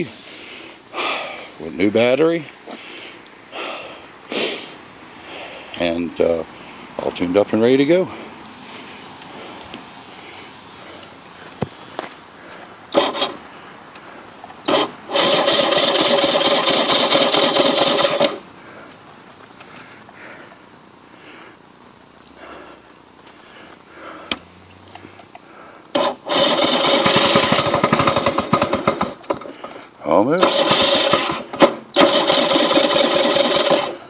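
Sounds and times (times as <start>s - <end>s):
electric starter cranking engine: 12.9s - 18.5s, 25.9s - 34.0s.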